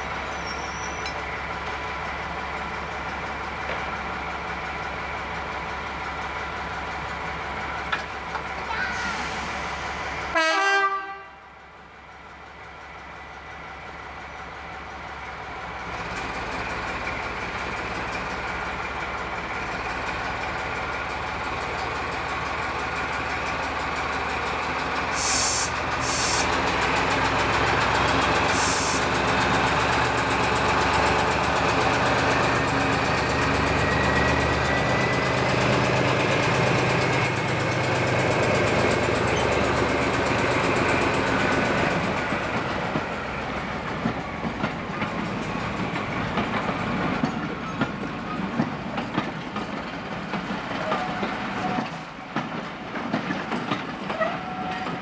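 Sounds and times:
locomotive horn blast: 10.3s - 11.4s.

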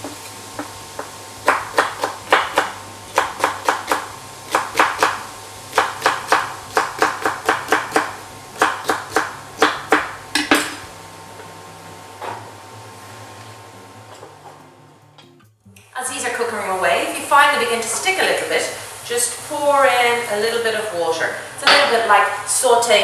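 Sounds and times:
knife chopping on wooden board: 0.0s - 10.6s.

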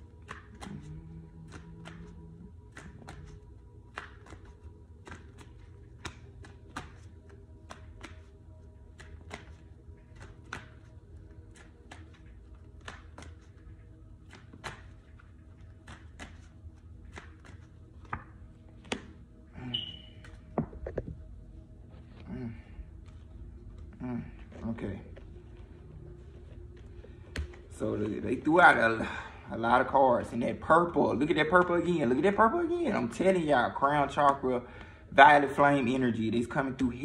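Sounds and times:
cards being shuffled: 0.0s - 19.4s.

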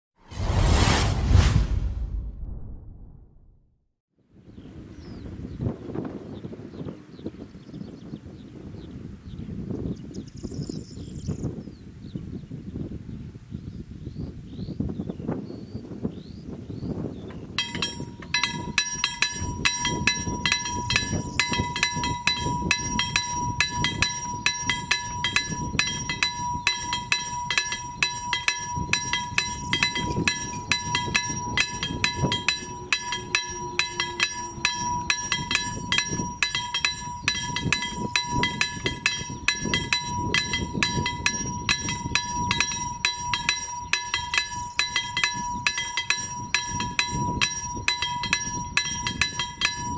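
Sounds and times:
level crossing bell ringing: 17.6s - 49.9s
steady high tone: 17.6s - 49.9s.

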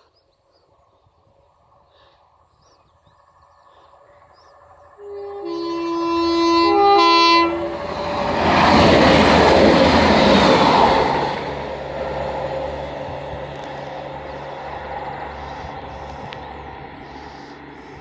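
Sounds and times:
train passing close by: 0.0s - 18.0s
train horn: 5.0s - 8.7s.

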